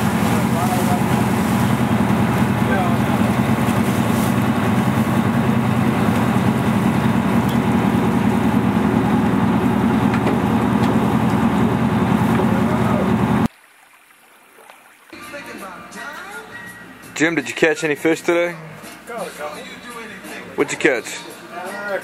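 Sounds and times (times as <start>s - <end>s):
boat engine running: 0.0s - 13.5s
water noise: 0.0s - 16.0s.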